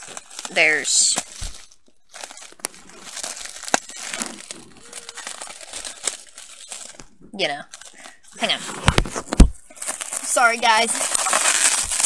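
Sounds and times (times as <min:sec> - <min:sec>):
plastic film snapping: 0:00.0 - 0:07.1
plastic wrap crinkling: 0:00.0 - 0:12.0.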